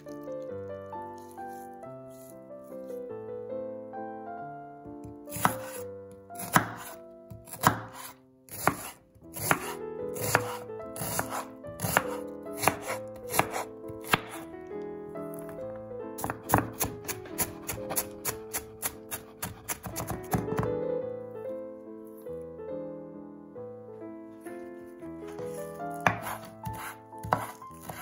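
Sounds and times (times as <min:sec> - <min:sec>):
knife chopping on cutting board: 0:05.3 - 0:14.4, 0:16.2 - 0:20.7, 0:25.3 - 0:28.0.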